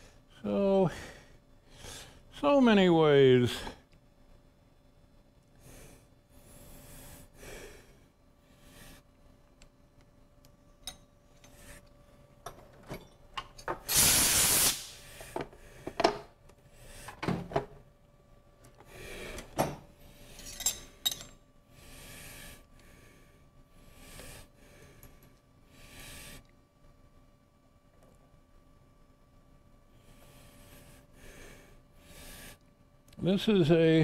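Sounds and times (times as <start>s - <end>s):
loud hissing rush: 13.9s - 15.0s.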